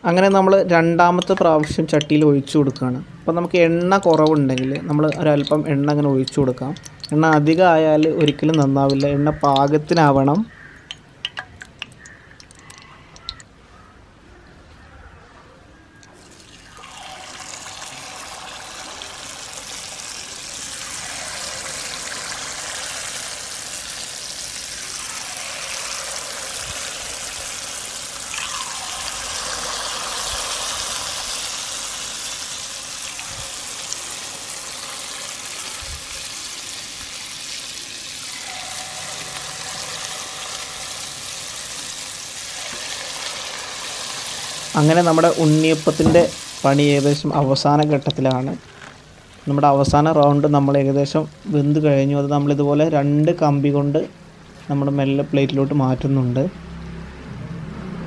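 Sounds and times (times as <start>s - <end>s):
batter sizzling in hot oil: 16.2s - 48.2s.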